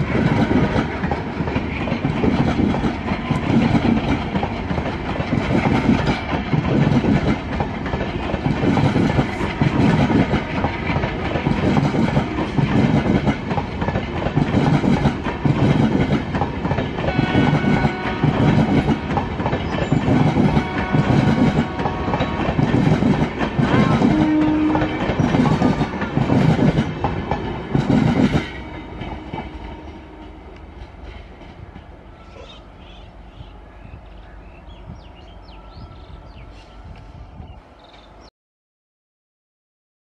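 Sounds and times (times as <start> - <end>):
train wheels clattering: 0.0 - 31.9.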